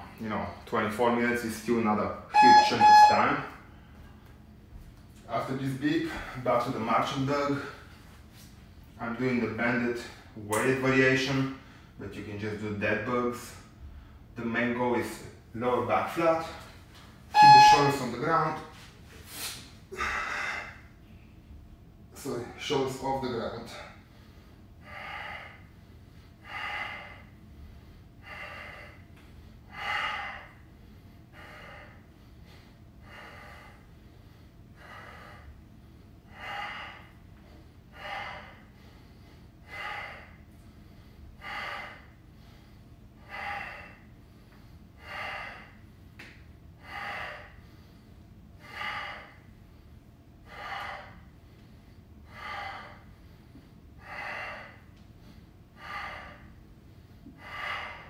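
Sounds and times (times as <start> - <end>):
man breathing hard: 6.0 - 6.5, 18.8 - 21.3, 23.7 - 58.0.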